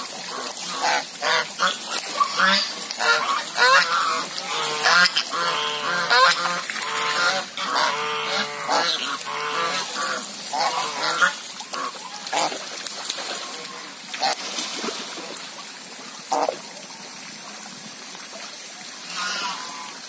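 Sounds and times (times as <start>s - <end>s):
geese honking: 0.7s - 12.5s.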